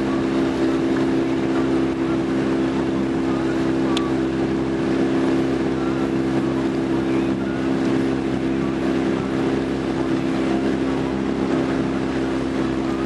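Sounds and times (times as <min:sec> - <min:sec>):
outboard engine humming: 0:00.0 - 0:13.0.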